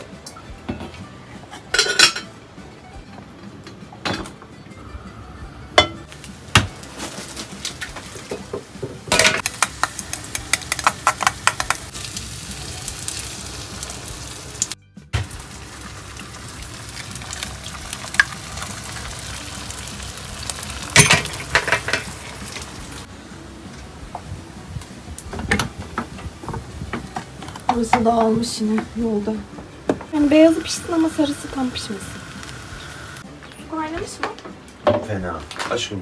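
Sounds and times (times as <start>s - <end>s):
food sizzling in a frying pan: 6.1s - 23.1s, 30.1s - 33.2s.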